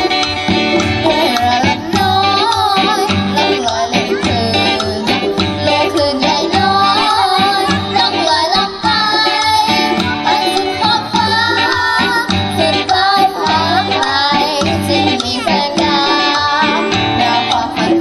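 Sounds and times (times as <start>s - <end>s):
live band playing: 0.0s - 18.0s
person singing: 0.0s - 18.0s.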